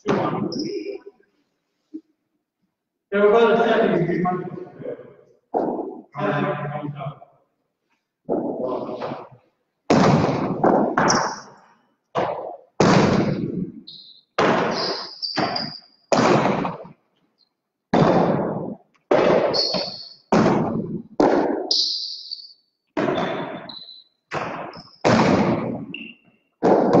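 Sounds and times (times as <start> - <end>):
ball cracking against walls: 8.3 - 11.5, 26.6 - 27.0
short high squeaks: 13.9 - 16.0, 19.5 - 20.3, 21.7 - 22.6.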